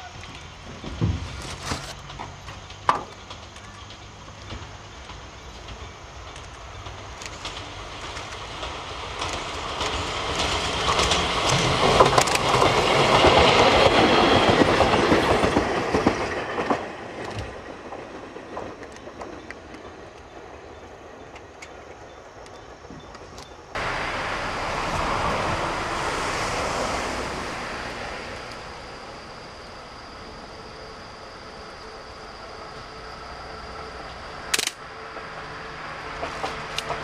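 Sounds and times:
electric train passing: 0.0 - 37.0
wheels clicking over rail joints: 0.0 - 37.0.

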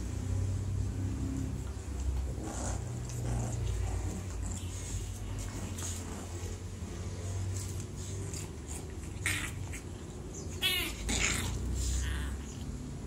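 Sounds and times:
puppies play-fighting: 0.0 - 13.0
puppy yelping: 9.0 - 12.6.

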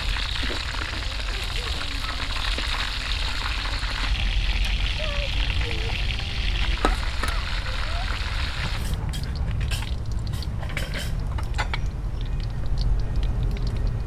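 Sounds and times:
kitchenware clinking: 10.6 - 11.8.

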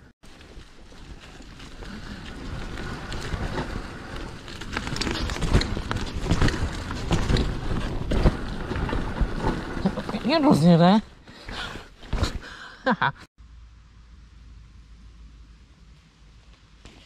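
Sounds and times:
bike knocking and rattling: 0.2 - 10.4.

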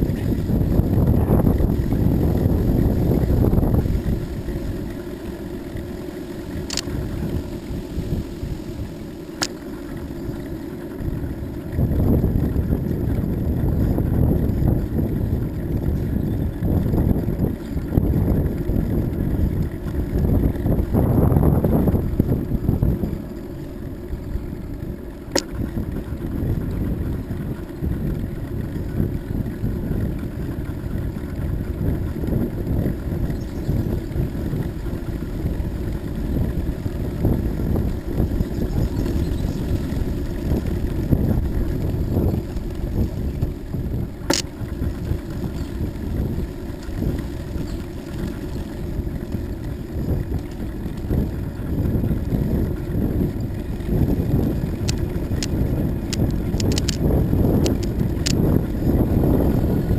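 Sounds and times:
wind rushing over microphone: 0.0 - 59.9
faint ticks: 6.6 - 7.0, 54.4 - 58.7.

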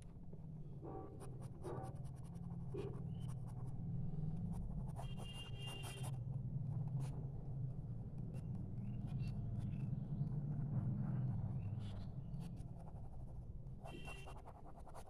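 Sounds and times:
pencil scratching on paper: 0.9 - 3.8, 4.8 - 6.1, 11.8 - 15.0.

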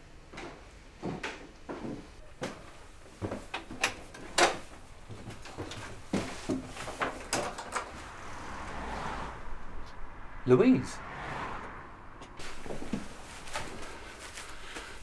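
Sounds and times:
outside noise: 0.0 - 15.0
footsteps: 0.3 - 8.9, 11.6 - 15.0
wooden door unlocking and opening: 3.3 - 4.7, 6.8 - 8.0.

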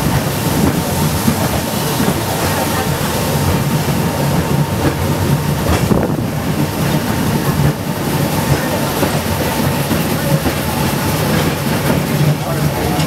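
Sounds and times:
tram wheels rumbling on rails: 0.0 - 13.0.

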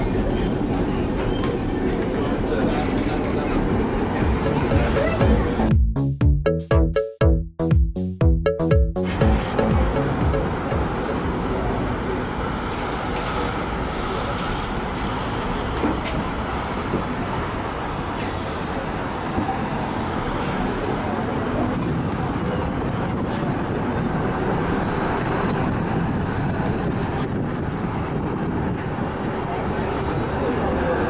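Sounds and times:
tram wheels rumbling on rails: 11.3 - 31.0.

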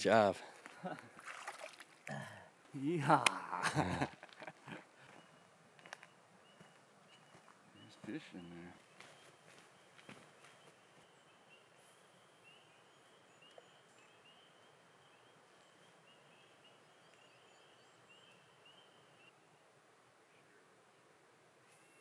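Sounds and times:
spring peepers peeping: 5.0 - 19.3.

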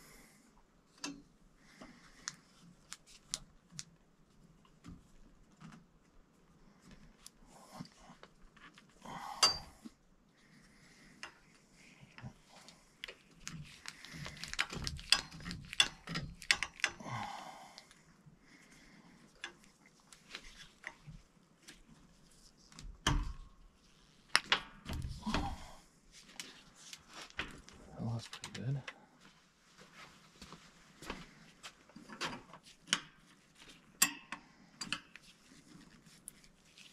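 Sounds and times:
copper pipe clinks and knocks: 9.4 - 9.9.

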